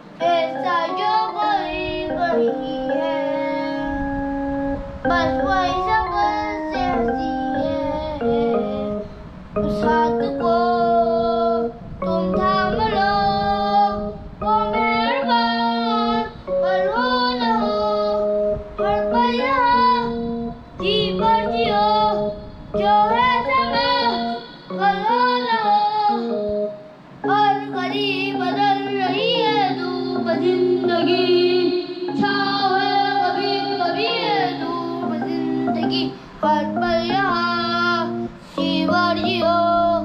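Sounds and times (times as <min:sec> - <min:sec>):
child singing into microphone: 0:00.0 - 0:40.0
electronic keyboard notes: 0:00.0 - 0:40.0.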